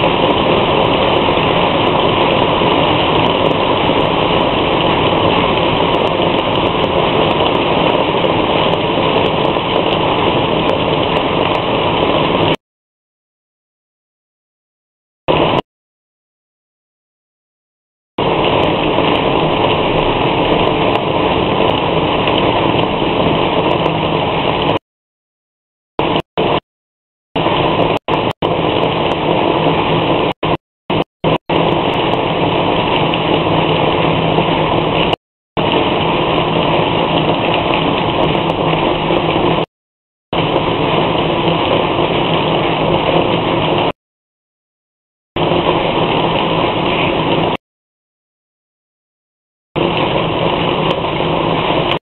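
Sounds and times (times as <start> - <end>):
rain falling: 0.0 - 12.6, 15.3 - 15.6, 18.2 - 24.8, 26.0 - 26.6, 27.4 - 39.7, 40.4 - 44.0, 45.4 - 47.6, 49.8 - 52.0.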